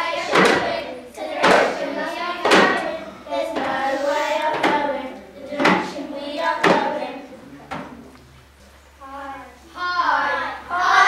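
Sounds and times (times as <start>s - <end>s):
children singing together: 0.0s - 8.0s, 9.0s - 11.0s.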